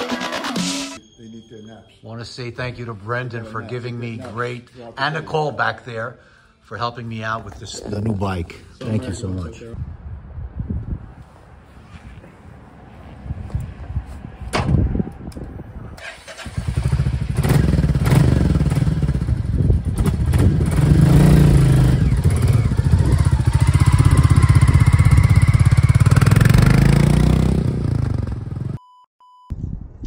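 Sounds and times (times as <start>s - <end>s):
motorcycle engine running: 16.6s - 28.8s.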